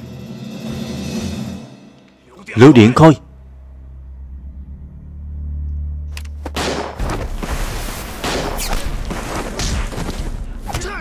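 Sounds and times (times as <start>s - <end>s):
gunfire: 6.5s - 7.4s, 8.2s - 10.0s.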